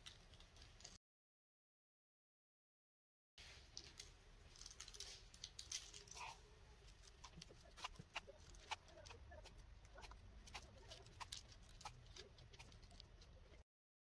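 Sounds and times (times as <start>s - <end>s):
seeds pattering on pastry: 3.4s - 13.6s.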